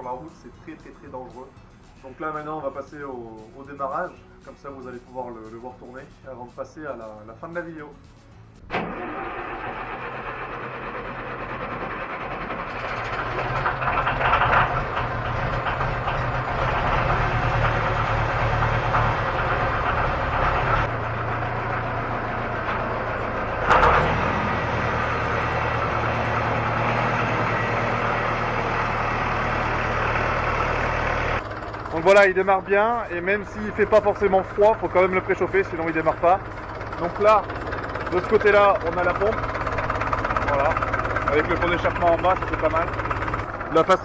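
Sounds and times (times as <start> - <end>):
tractor engine starting and idling: 0.0 - 44.0.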